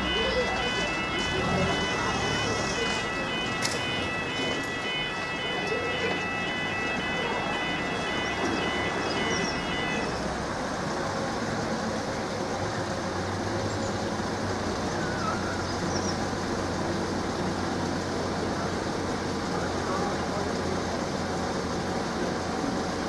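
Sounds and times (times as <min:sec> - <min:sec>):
level crossing alarm wailing: 0:00.0 - 0:10.5
road traffic rumble: 0:00.0 - 0:23.0.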